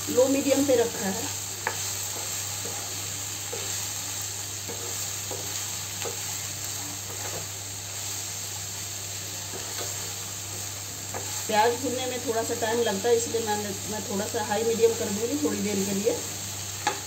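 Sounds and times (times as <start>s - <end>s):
vegetables sizzling in a pan: 0.0s - 17.0s
wooden spatula scraping a pan: 1.6s - 8.2s, 9.4s - 11.6s.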